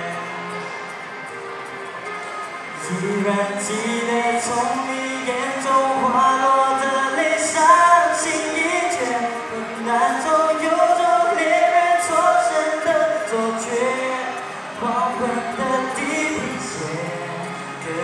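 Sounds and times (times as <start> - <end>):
man singing into a microphone: 0.0 - 0.9, 2.7 - 18.0
musical accompaniment: 0.0 - 18.0.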